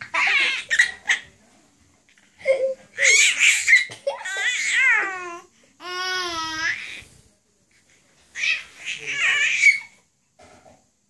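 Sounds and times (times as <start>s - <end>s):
baby squealing: 0.0s - 1.3s, 3.0s - 5.2s, 8.4s - 10.0s
baby babbling: 3.0s - 7.0s, 8.4s - 9.9s.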